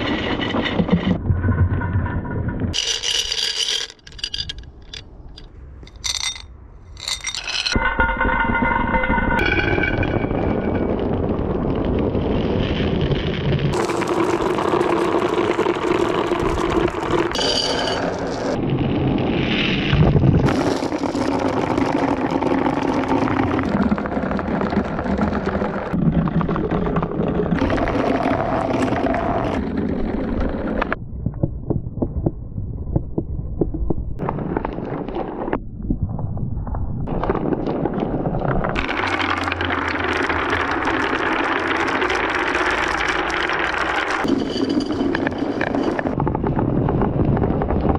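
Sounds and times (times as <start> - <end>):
marbles rolling down tracks: 2.7 - 7.8, 13.7 - 18.6, 20.5 - 25.9, 38.7 - 46.2.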